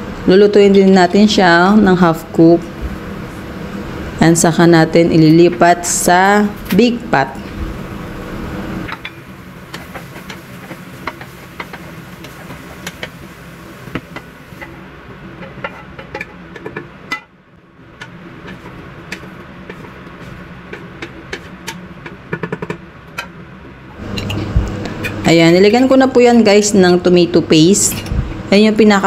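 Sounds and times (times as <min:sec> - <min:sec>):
low hum: 0:23.9 - 0:29.0.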